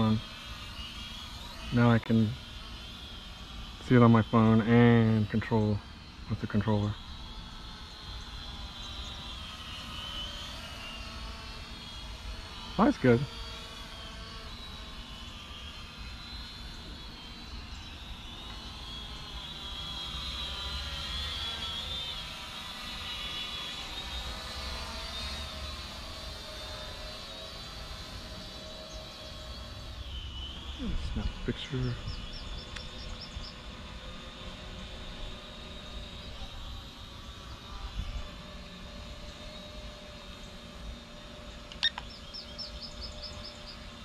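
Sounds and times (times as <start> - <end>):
drone propellers buzzing: 0.0 - 44.0.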